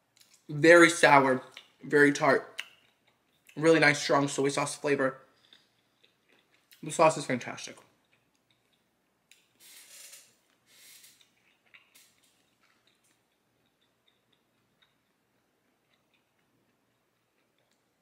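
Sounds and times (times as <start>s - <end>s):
soft mouth clicks chewing: 2.6s - 3.6s, 5.4s - 6.8s, 8.0s - 9.6s, 11.2s - 18.0s.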